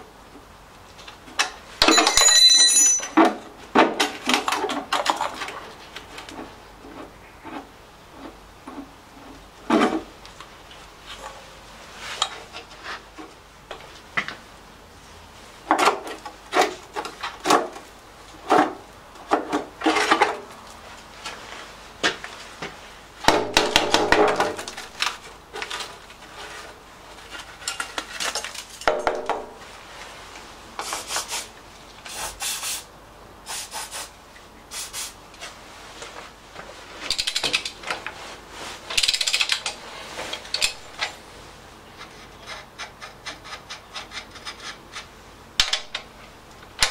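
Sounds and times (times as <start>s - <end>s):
metal parts and tools clinking: 1.4s - 3.5s, 37.0s - 38.1s, 38.9s - 41.2s.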